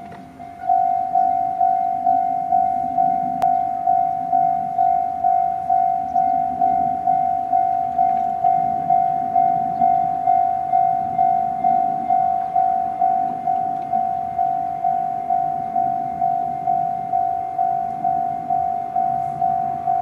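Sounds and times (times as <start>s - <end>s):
level crossing warning bell ringing: 0.0s - 20.0s.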